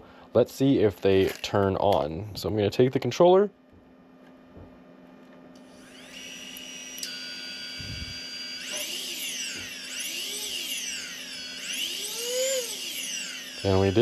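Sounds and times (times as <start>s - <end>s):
electric motors whining: 5.6s - 14.0s.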